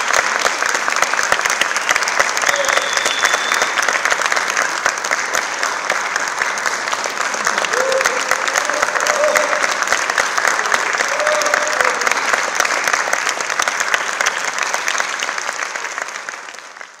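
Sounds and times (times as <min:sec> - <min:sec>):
audience applauding: 0:00.0 - 0:17.0
shout from the audience: 0:07.5 - 0:09.8, 0:10.6 - 0:12.2.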